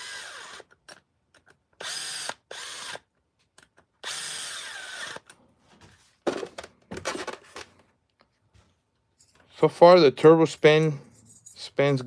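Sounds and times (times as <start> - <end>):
cordless drill running: 0.0 - 0.8, 1.8 - 3.1, 4.0 - 5.3.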